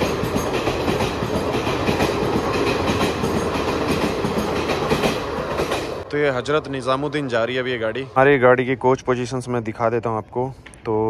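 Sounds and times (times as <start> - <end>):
train wheel clatter: 0.0 - 7.5
train coaches rumbling: 0.0 - 10.0.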